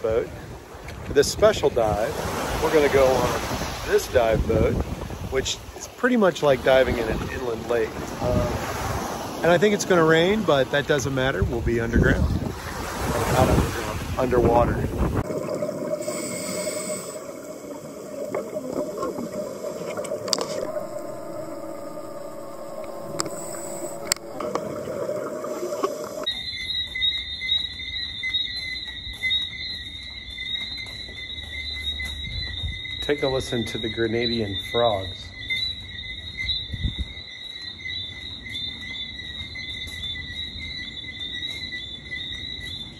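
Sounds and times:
frogs chirping: 0:00.0 - 0:42.9
regulator bubbles gurgling: 0:15.1 - 0:26.3
steady underwater hum: 0:15.1 - 0:26.3
continuous high ringing: 0:15.2 - 0:42.9
sharp clicks: 0:19.9 - 0:26.3.

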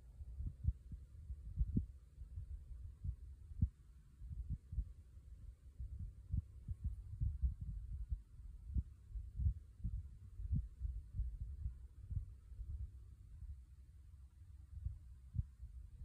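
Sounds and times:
wind buffeting microphone: 0:05.8 - 0:12.8.

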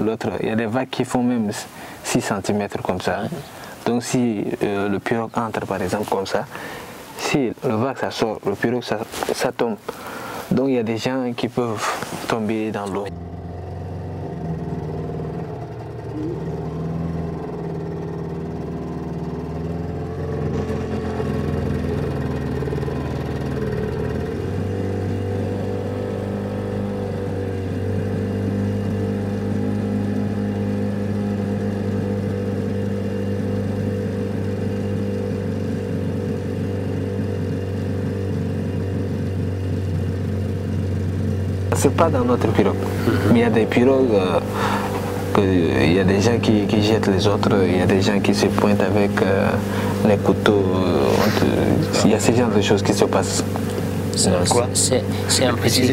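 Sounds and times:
boat motor running: 0:00.0 - 0:55.9
water hissing: 0:42.6 - 0:45.8, 0:48.1 - 0:55.6.

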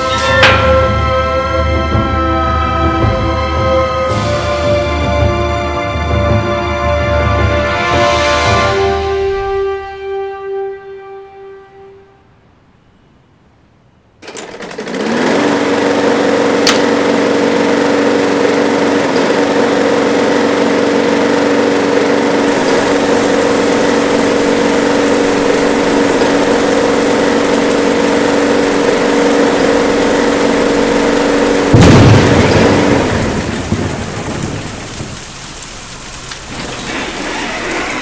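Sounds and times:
lawn mower engine running: 0:14.2 - 0:38.0.

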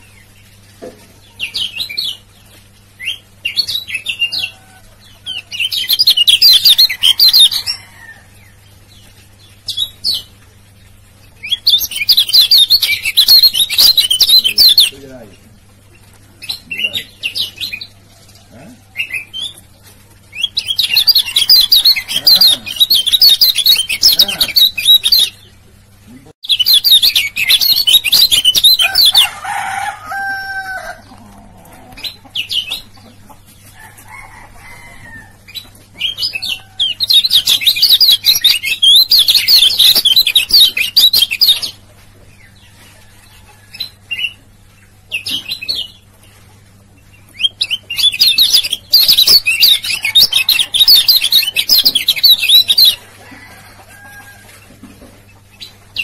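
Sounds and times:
bird twittering song: 0:05.3 - 0:18.0, 0:20.3 - 0:25.5, 0:26.1 - 0:29.3, 0:35.5 - 0:41.8, 0:47.0 - 0:53.1.

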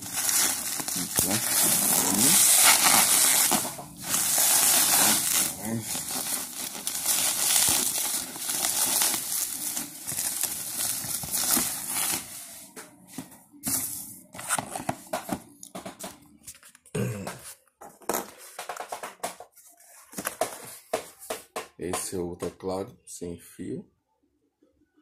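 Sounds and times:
bubble wrap crinkling: 0:00.0 - 0:15.5.

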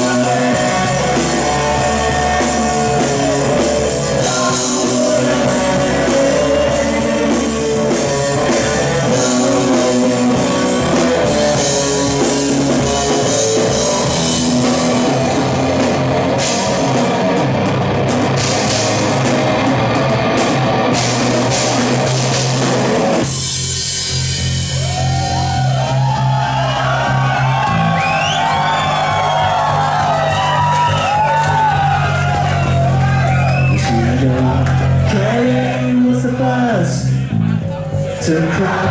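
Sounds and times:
man singing: 0:00.0 - 0:14.1, 0:33.7 - 0:37.2, 0:38.1 - 0:38.9
crowd whooping and shouting: 0:00.0 - 0:18.8, 0:24.5 - 0:38.9
live rock band playing: 0:00.0 - 0:38.9.

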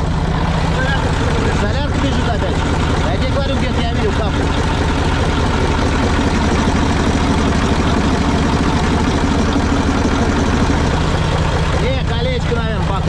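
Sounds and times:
diesel engine idling: 0:00.0 - 0:13.0.

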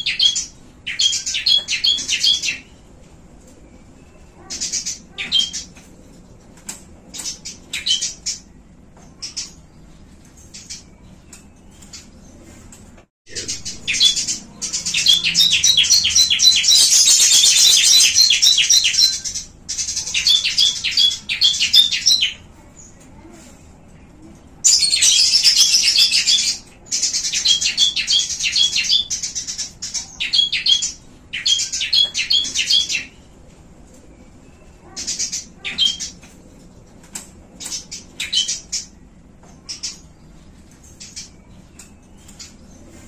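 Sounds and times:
small songbirds chirping: 0:13.3 - 0:23.0, 0:24.6 - 0:33.3.

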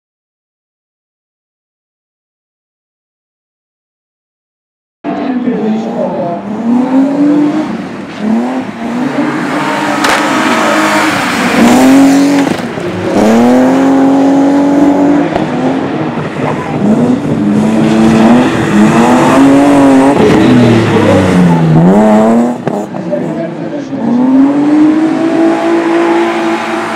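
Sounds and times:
car engine revving hard: 0:05.7 - 0:26.9.

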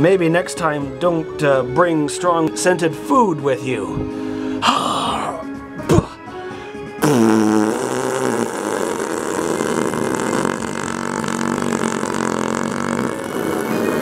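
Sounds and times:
rasping fart sound effect: 0:07.0 - 0:14.0.

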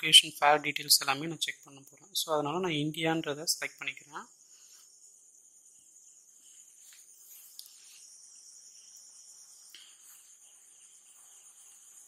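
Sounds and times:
steady high-pitched hiss: 0:00.0 - 0:12.0.

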